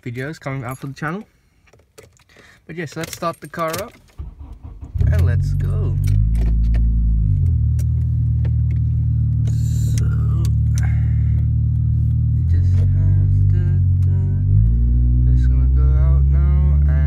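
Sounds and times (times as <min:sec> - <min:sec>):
car engine running: 0:04.2 - 0:17.0.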